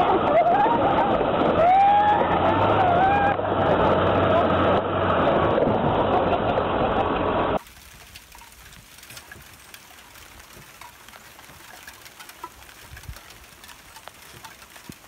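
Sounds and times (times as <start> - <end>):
light ticks: 7.6 - 15.0.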